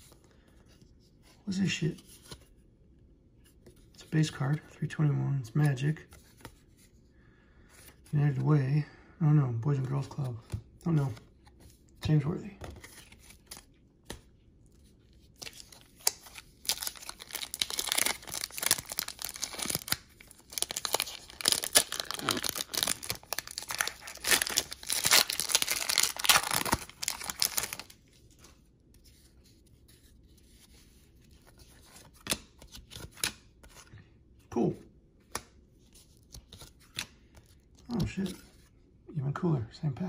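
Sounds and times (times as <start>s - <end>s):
wrapper tearing and crinkling: 16.0s - 27.9s.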